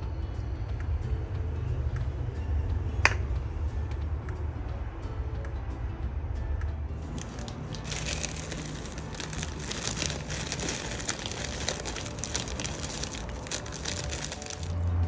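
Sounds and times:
plastic snack bag crinkling: 7.1 - 14.8
snacks spilling into bowl: 7.1 - 14.8.

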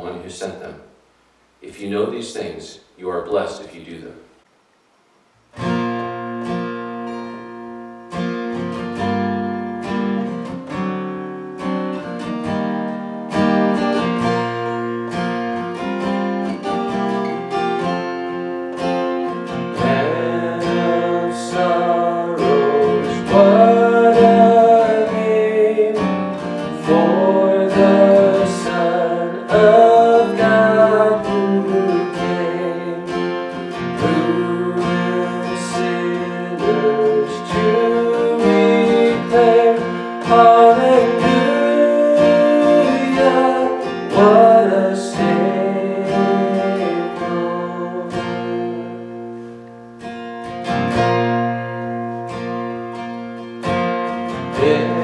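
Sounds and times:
acoustic guitar strumming: 5.4 - 55.0
man singing: 19.7 - 49.2, 54.4 - 55.0.

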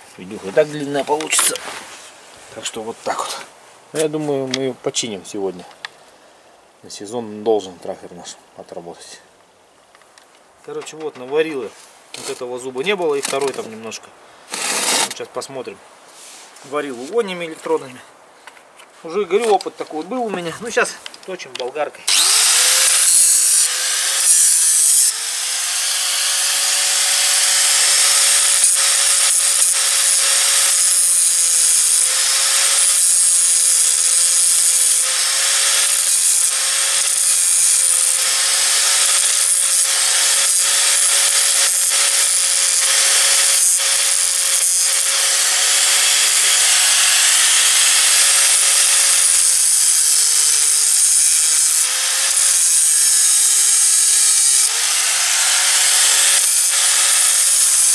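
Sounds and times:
angle grinder grinding metal: 14.5 - 15.2, 22.1 - 57.9.

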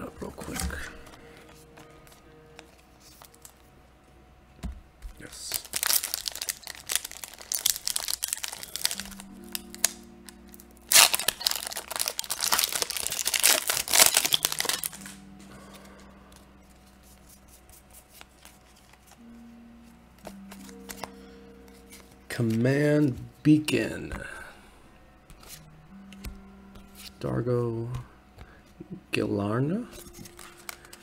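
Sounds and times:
soft background music: 0.0 - 31.0
foil wrapper crinkling and tearing: 5.2 - 15.2, 30.0 - 31.0.

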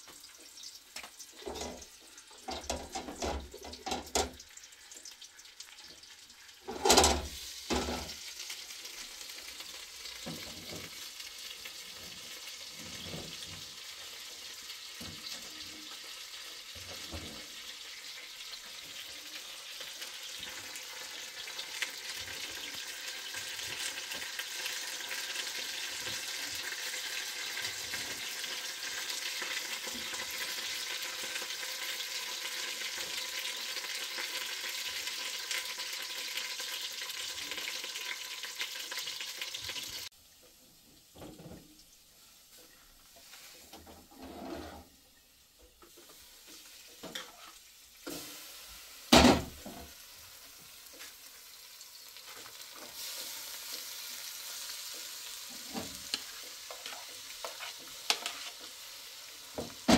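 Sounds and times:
food sizzling in a pan: 0.0 - 59.9.

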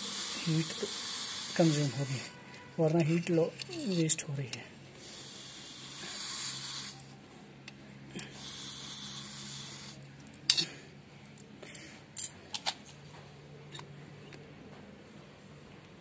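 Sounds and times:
hissing water: 0.0 - 2.2.

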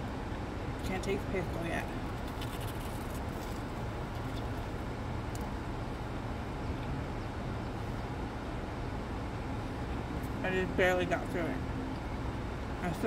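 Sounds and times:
car engine and air conditioning hum: 0.0 - 13.0.

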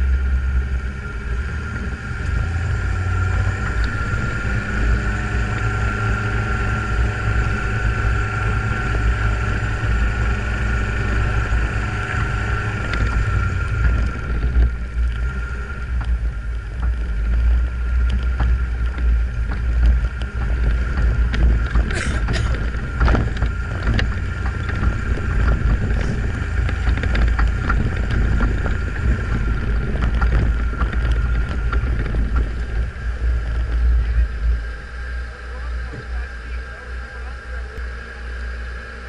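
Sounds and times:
car engine running: 0.0 - 39.0
wind rumble on microphone: 0.0 - 39.0
sharp clicks and knocks: 12.1 - 33.8.

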